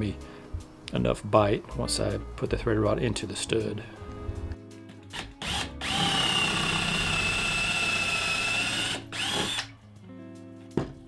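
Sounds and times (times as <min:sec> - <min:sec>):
cordless drill whining: 0:05.1 - 0:09.7.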